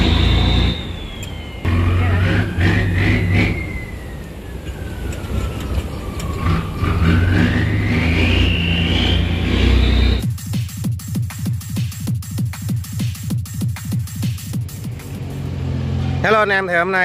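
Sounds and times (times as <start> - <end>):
high whine: 0.0 - 10.4.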